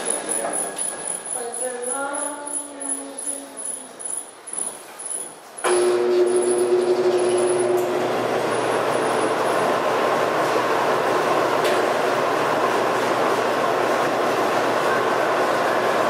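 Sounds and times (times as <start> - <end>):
industrial fans rushing air: 7.6 - 16.0.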